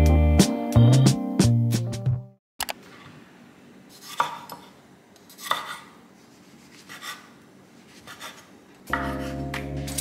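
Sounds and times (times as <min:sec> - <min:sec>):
knife slicing on wooden board: 0:03.9 - 0:04.6, 0:05.3 - 0:05.9, 0:06.6 - 0:10.0.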